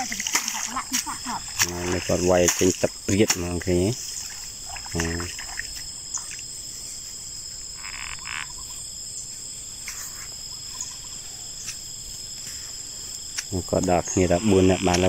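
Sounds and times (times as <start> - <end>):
frog croaking: 0.0 - 6.5, 7.6 - 9.0, 10.4 - 11.6, 13.5 - 15.0
insects buzzing: 0.0 - 15.0.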